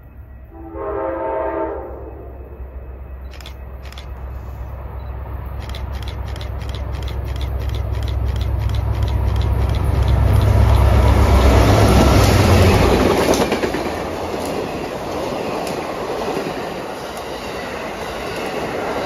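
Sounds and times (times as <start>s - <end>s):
diesel locomotive engine rumble: 0.0s - 19.0s
train cars clattering: 5.5s - 19.0s.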